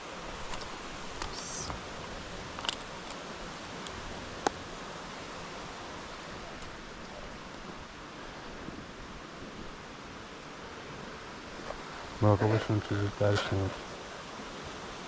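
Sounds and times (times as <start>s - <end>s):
rushing hiss of outdoor noise: 0.0s - 15.0s.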